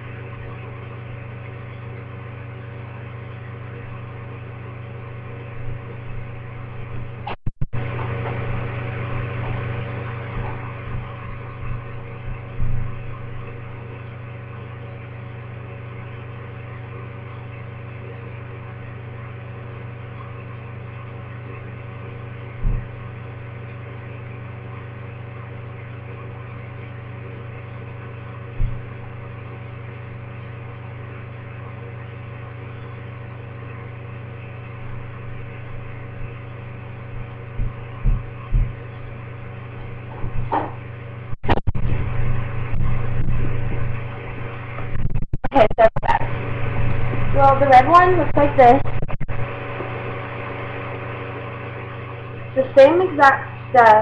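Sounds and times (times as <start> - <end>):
steady low hum: 0.0 - 54.0
dull thumps: 37.0 - 42.0.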